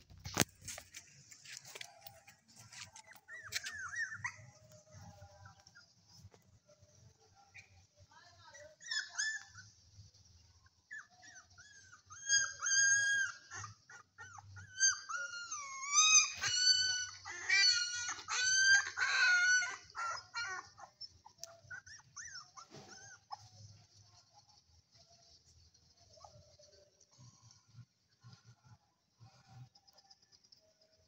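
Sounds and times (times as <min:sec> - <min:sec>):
puppies whining and crying: 0:01.6 - 0:05.1, 0:10.9 - 0:23.6.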